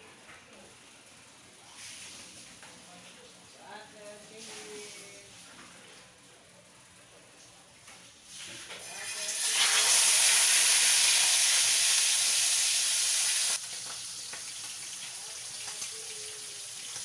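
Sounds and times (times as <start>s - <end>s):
meat sizzling in a frying pan: 8.5s - 17.0s.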